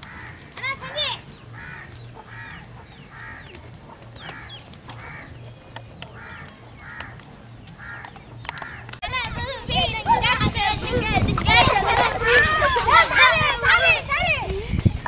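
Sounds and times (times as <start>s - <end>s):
crows cawing: 0.0s - 9.0s.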